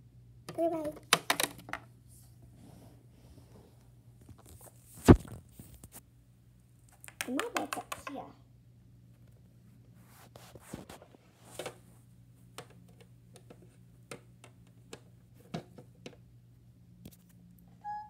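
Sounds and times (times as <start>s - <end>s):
small toys tapping on plastic: 0.5s - 1.9s, 7.0s - 8.2s.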